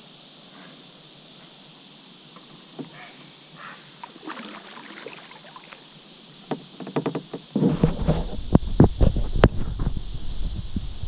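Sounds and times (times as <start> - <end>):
gear clicks and knocks: 6.5 - 9.1
handling noise on microphone: 6.5 - 11.0.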